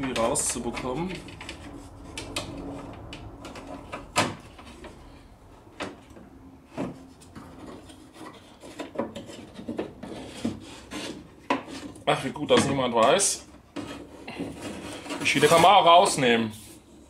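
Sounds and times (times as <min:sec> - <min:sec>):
light rubbing: 0:00.0 - 0:17.0
parts scraping inside car door: 0:00.1 - 0:12.0.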